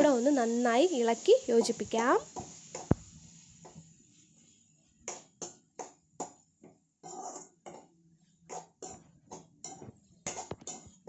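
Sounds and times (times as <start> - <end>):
spatula scraping metal pan: 7.0 - 7.9, 8.5 - 11.0.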